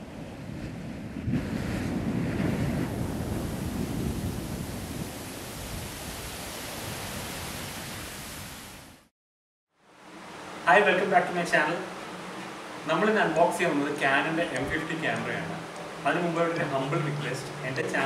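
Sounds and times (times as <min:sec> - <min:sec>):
wind buffeting microphone: 0:00.0 - 0:08.4
surf washing over sand: 0:00.0 - 0:09.1.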